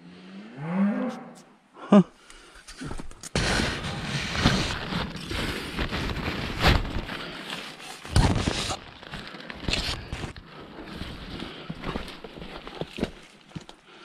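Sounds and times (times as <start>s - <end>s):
rustling through dry leaves: 3.4s - 13.8s.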